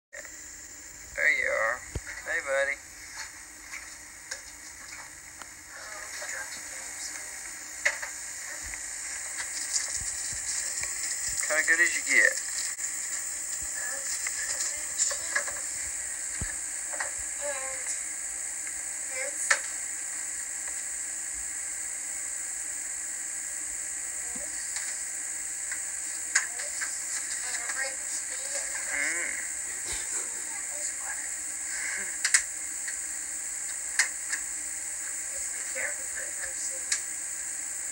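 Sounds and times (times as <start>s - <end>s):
tape hiss: 0.2s - 37.9s
crackles and rustling: 1.8s - 21.0s, 24.2s - 31.1s.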